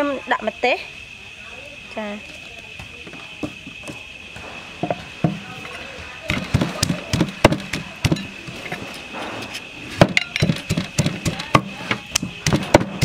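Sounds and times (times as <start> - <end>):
wooden pestle pounding in mortar: 6.3 - 8.3, 10.0 - 13.0.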